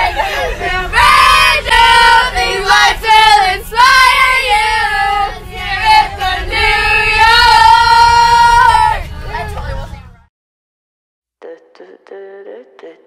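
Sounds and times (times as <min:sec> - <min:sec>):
girls singing loudly together: 0:00.0 - 0:09.1
low bus rumble: 0:00.0 - 0:10.3.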